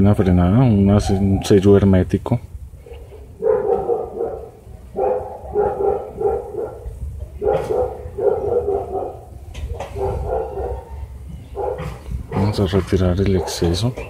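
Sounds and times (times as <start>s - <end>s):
dog barking: 2.8s - 12.5s, 13.3s - 14.0s.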